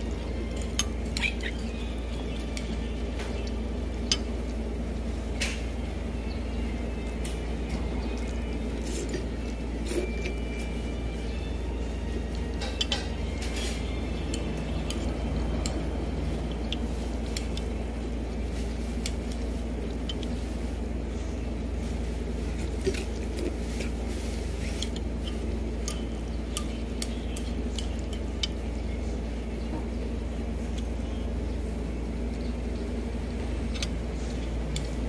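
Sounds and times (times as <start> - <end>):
low background hum: 0.0 - 35.0
dishes and cutlery clinking: 12.5 - 13.8.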